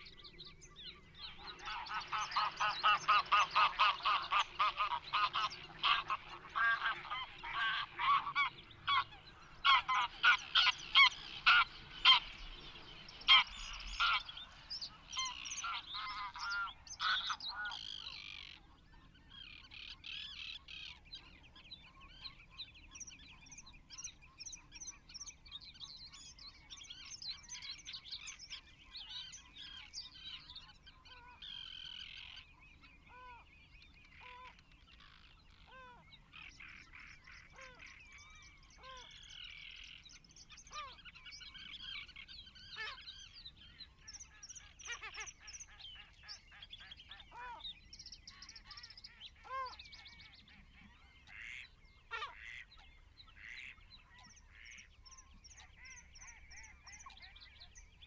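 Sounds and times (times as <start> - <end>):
birds calling: 0.0 - 58.0
geese honking: 1.3 - 12.4, 13.2 - 18.0, 51.3 - 52.7.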